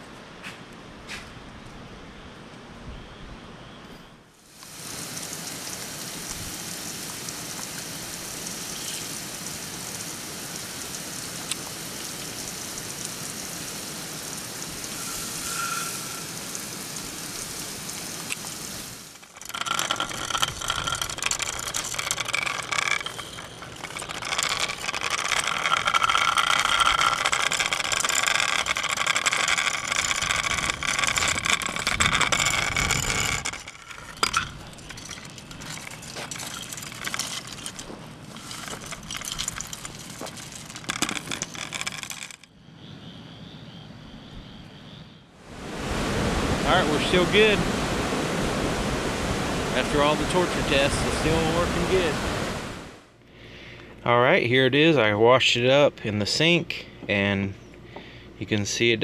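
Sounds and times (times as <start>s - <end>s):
water spray hissing: 4.5s - 40.9s
water spattering on a light: 4.5s - 41.0s.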